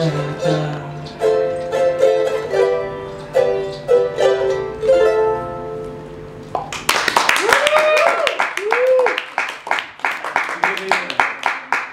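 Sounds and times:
ukulele chords: 0:00.0 - 0:06.8
audience clapping: 0:06.5 - 0:11.9.

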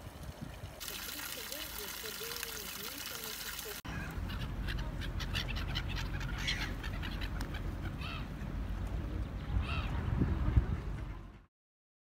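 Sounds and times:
gulls calling: 0:01.0 - 0:08.8.

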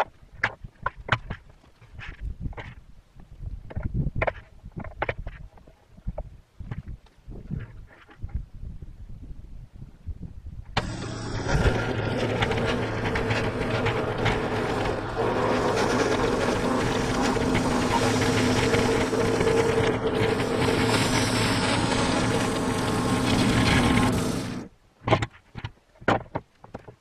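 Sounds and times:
band saw blade cutting log: 0:10.8 - 0:24.7
sawmill gas engine running: 0:10.8 - 0:24.7.

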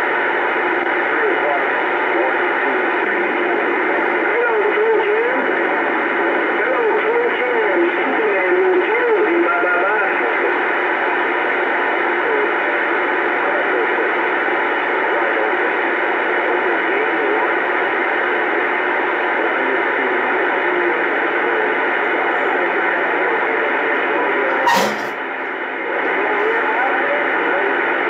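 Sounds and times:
faint garbled radio voices: 0:00.0 - 0:28.0
radio static hiss: 0:00.0 - 0:28.0.

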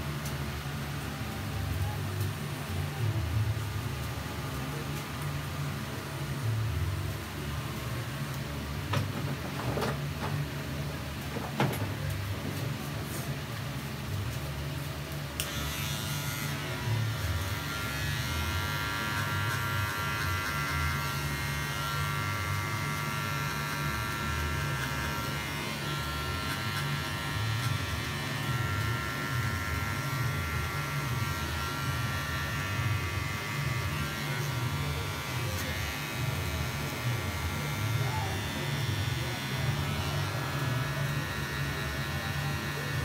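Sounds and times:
electric hair clippers humming: 0:15.2 - 0:43.0.

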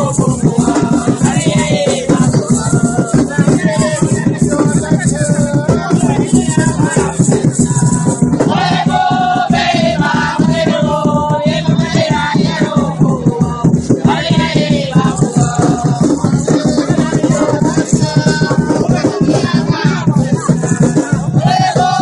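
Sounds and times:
shaken rattles: 0:00.0 - 0:09.4
fast steady drum beat: 0:00.0 - 0:22.0
group singing: 0:00.0 - 0:22.0.

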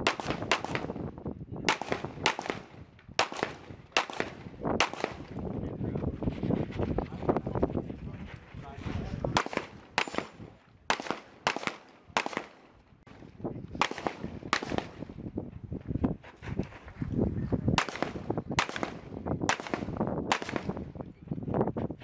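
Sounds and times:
pistol shots: 0:00.0 - 0:01.0, 0:01.6 - 0:05.4, 0:09.3 - 0:13.2, 0:13.8 - 0:15.1, 0:17.8 - 0:20.8.

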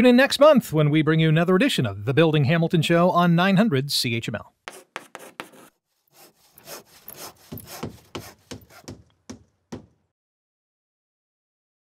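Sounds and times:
rasping scratching strokes: 0:04.7 - 0:09.0.

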